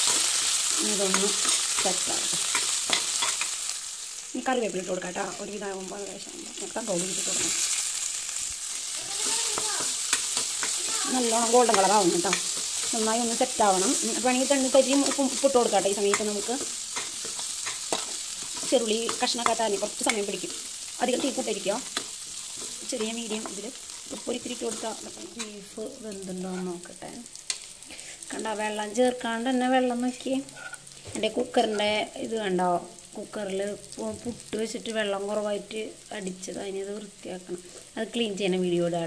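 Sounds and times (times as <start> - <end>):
spatula scraping and clinking pan: 0.0 - 3.6, 9.2 - 13.1, 13.8 - 20.3, 30.5 - 30.8
vegetables sizzling in hot oil: 0.0 - 39.0.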